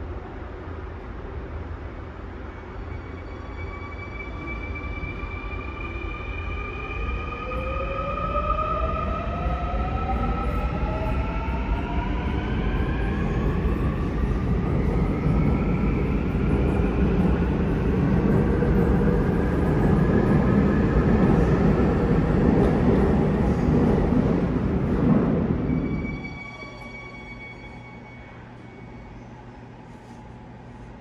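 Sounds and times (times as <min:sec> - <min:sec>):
train wheels rumbling on rail: 0:08.3 - 0:26.2.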